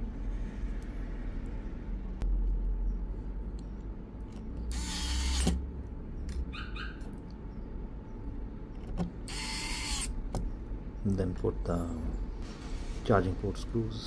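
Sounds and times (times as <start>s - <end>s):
electric screwdriver whirring: 4.7s - 5.6s, 9.3s - 10.2s.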